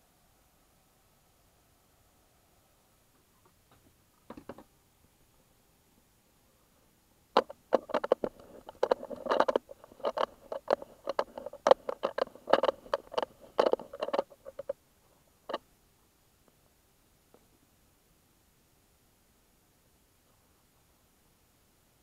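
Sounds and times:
sharp clicks and scratchy crackles: 0:07.3 - 0:14.8, 0:15.4 - 0:15.6.

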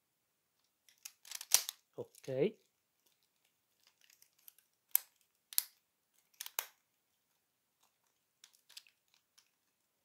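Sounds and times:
plastic toy parts clicking: 0:00.8 - 0:02.3, 0:03.0 - 0:06.8, 0:08.4 - 0:09.6.

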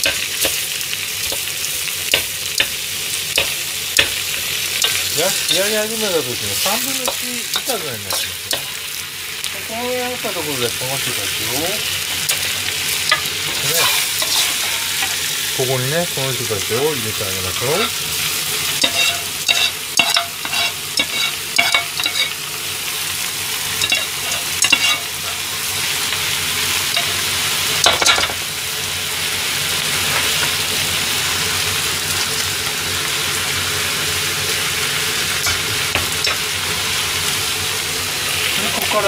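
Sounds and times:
food sizzling in a wok: 0:00.0 - 0:39.0
metal ladle scraping and clinking: 0:13.1 - 0:15.2, 0:18.8 - 0:22.4, 0:23.8 - 0:25.0.

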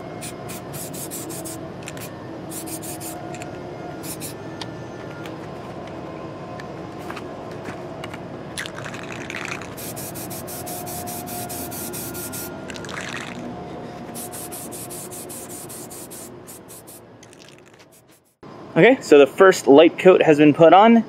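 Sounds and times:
aerosol can spraying: 0:00.2 - 0:03.2, 0:04.0 - 0:04.4, 0:09.0 - 0:12.5, 0:14.1 - 0:18.4.

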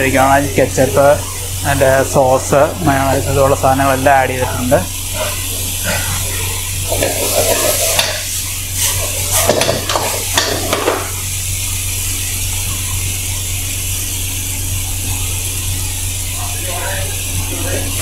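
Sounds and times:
food sizzling: 0:00.0 - 0:18.0
steady low hum: 0:00.0 - 0:18.0
ladle scraping against wok: 0:05.1 - 0:10.8.

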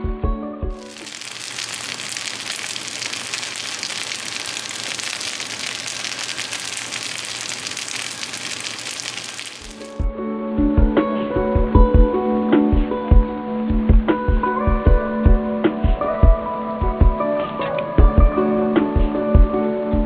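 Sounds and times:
rice sizzling in a frying pan: 0:00.8 - 0:10.0.

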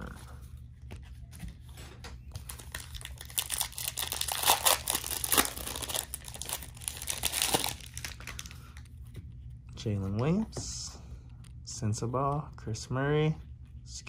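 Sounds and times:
foil card pack crinkling: 0:02.3 - 0:08.9.

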